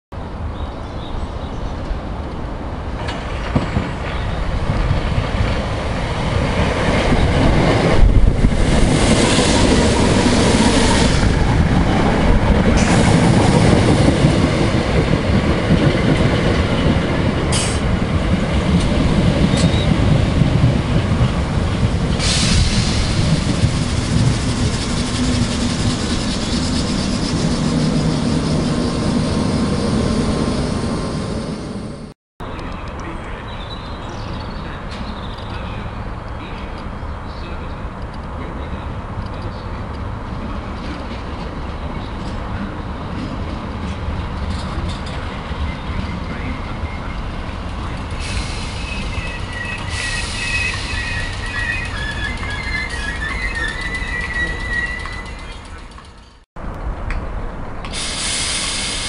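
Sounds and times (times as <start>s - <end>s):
electric train running past: 1.8s - 32.2s, 38.7s - 59.0s
wheel clatter: 50.7s - 56.4s.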